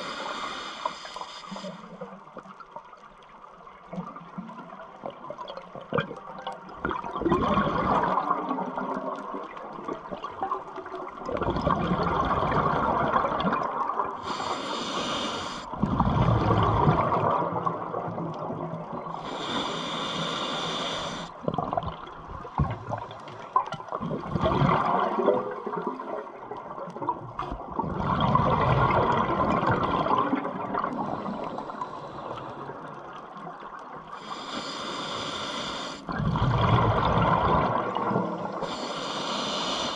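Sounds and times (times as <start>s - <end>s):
regulator inhalation hiss: 0.0s - 2.0s, 14.2s - 15.7s, 19.2s - 21.3s, 34.2s - 36.1s, 38.6s - 39.9s
exhaled air bubbling underwater: 0.0s - 39.9s.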